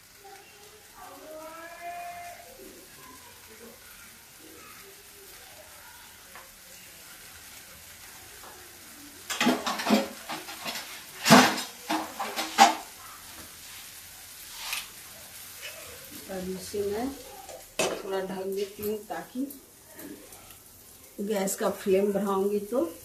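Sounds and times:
food sizzling in a pan: 0.0 - 23.0
metal kitchenware clattering: 9.3 - 13.0, 17.5 - 18.8.

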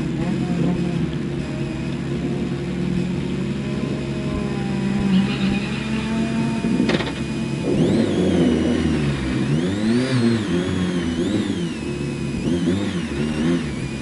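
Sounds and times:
car engine revving: 0.0 - 14.0.

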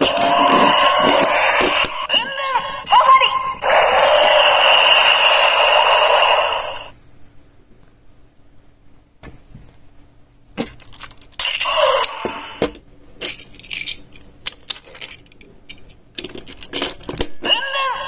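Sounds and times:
plastic toys clicking and knocking: 0.0 - 2.0, 10.6 - 17.7.

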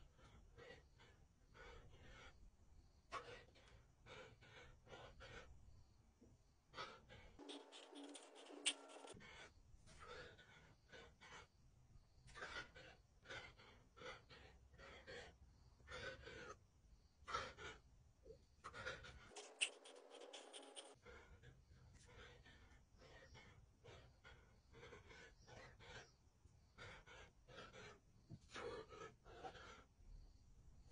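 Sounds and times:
man breathing hard: 3.1 - 5.6.

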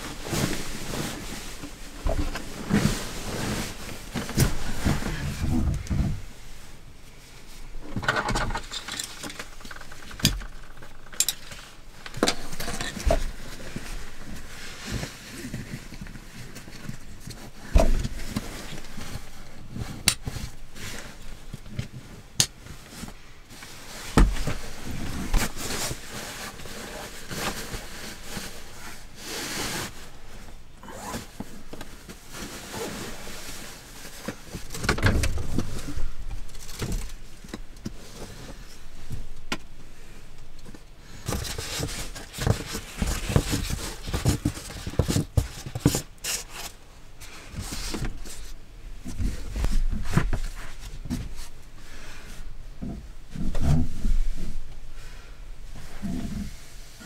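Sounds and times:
fabric rustling and swishing: 0.0 - 7.7, 13.2 - 34.7.

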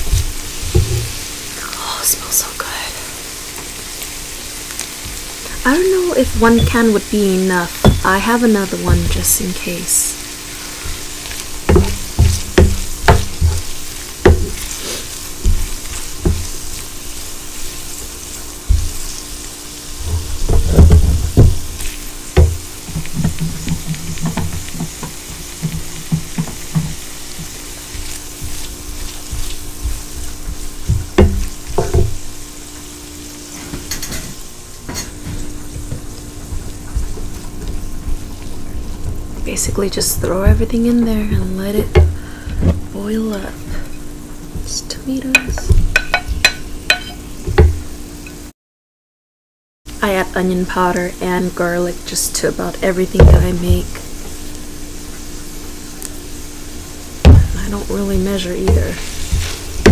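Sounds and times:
food sizzling in a frying pan: 0.0 - 48.5, 49.9 - 59.9
wooden spoon scraping a pan: 57.3 - 59.9.

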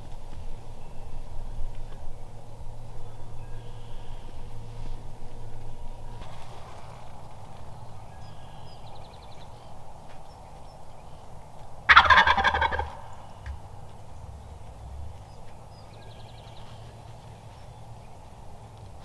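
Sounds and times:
faint songbird trills: 0.4 - 11.5, 12.9 - 18.8
turkey gobbling: 11.8 - 15.6.

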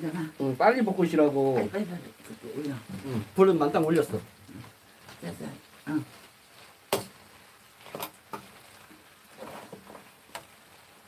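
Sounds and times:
utensil tapping on frying pan: 6.9 - 7.2, 8.2 - 8.5.

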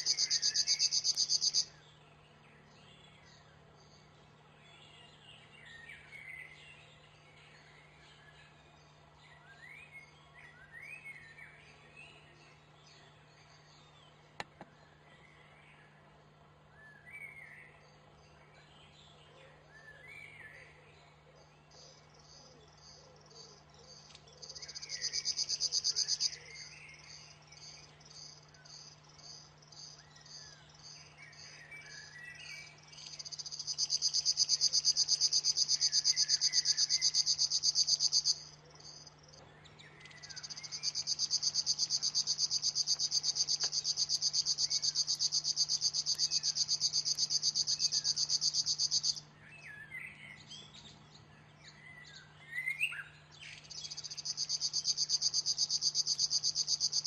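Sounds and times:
other birds chirping: 0.0 - 4.4, 19.8 - 57.0
buzzing bird song reel: 0.0 - 57.0.

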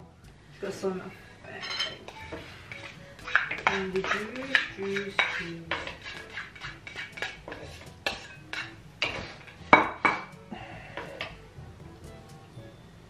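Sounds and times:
cutlery clinking on plates: 1.6 - 10.4.

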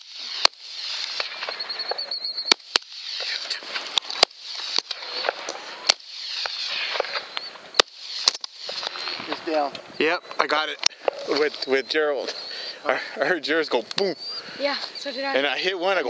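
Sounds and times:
rifle shots: 0.0 - 9.6.

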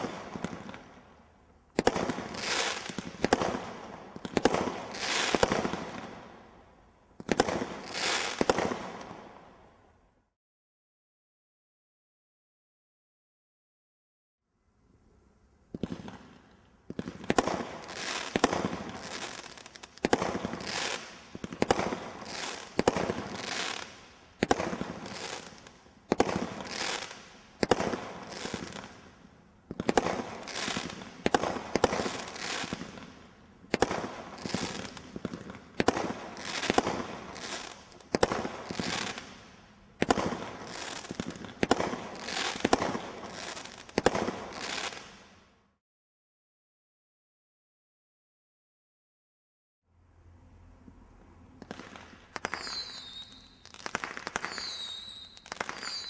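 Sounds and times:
firework hiss: 1.8 - 6.1, 7.3 - 9.0, 15.8 - 45.4.

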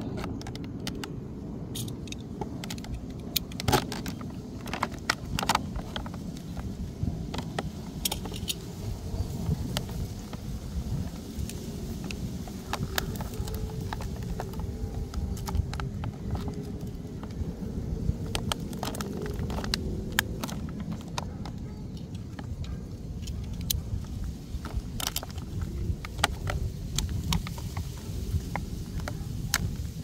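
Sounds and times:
steady low rumble: 0.0 - 30.0
plastic packaging crinkling: 2.5 - 22.5, 23.2 - 29.8.

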